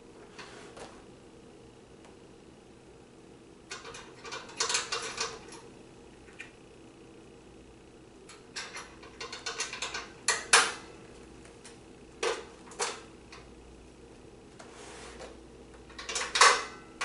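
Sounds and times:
metal filter parts clicking and clanking: 3.7s - 5.7s, 8.5s - 10.8s, 15.8s - 17.0s.

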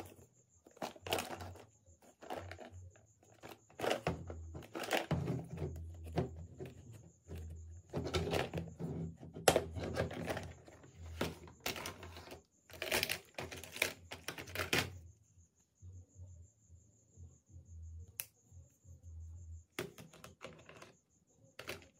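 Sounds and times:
plastic toy case clicks and rattles: 0.0s - 2.7s, 3.3s - 7.4s, 9.4s - 14.9s, 21.6s - 21.9s.

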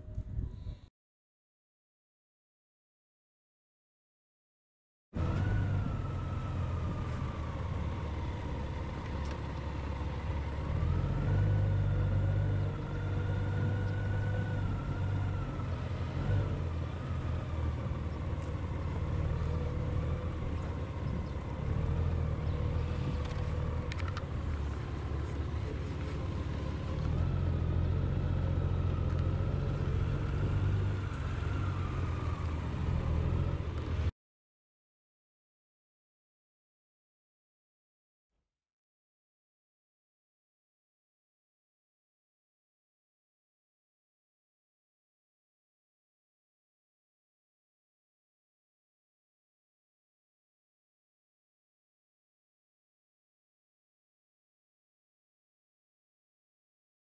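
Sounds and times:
road and wind rumble: 0.0s - 0.9s, 5.2s - 34.1s
vehicle engine running: 5.2s - 34.1s.

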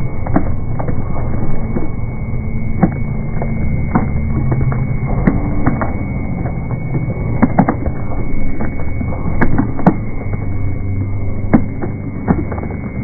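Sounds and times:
slowed crowd rumble: 0.0s - 13.0s
knocks and clicks: 2.8s - 13.0s.

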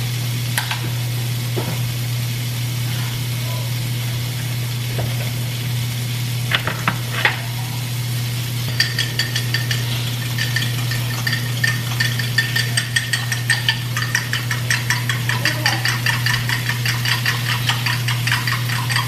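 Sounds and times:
sausages sizzling in grease: 0.0s - 19.0s
fork beating eggs in glass: 8.7s - 19.0s.

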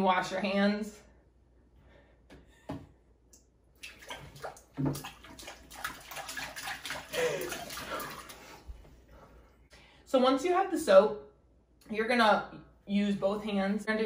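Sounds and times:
hands splashing in water: 3.8s - 8.6s.

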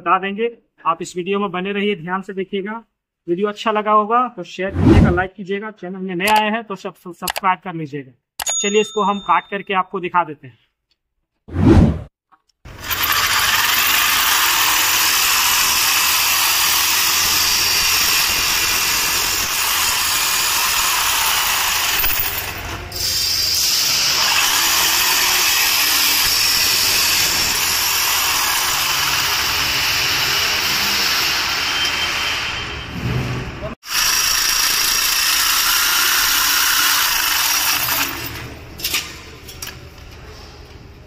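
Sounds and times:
jigsaw cutting metal: 12.7s - 32.8s, 33.8s - 38.4s.

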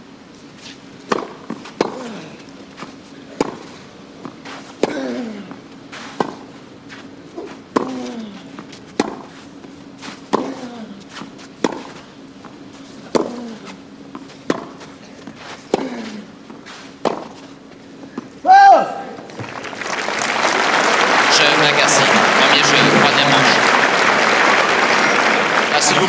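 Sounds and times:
racket striking tennis ball: 1.1s - 2.4s, 3.3s - 6.5s, 7.4s - 9.4s, 10.0s - 12.0s, 12.9s - 16.2s, 17.0s - 17.5s
player grunting: 4.9s - 5.5s, 10.4s - 11.0s, 15.8s - 16.3s.

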